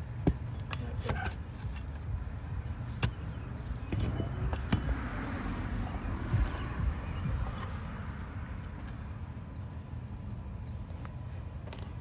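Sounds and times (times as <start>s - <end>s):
low rumble: 3.6s - 10.4s.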